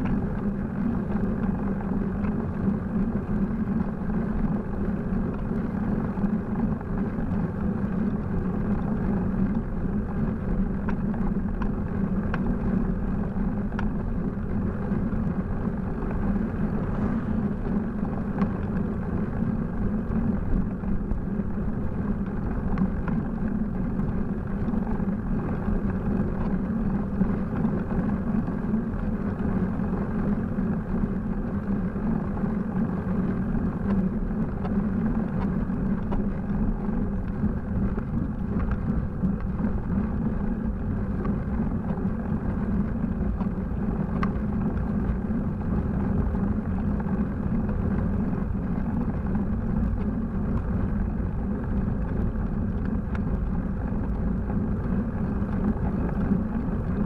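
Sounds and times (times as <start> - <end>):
rumbling road and wind noise: 0.0 - 57.0
faint tick: 10.3 - 12.7, 13.6 - 15.4, 17.4 - 19.4, 32.4 - 57.0.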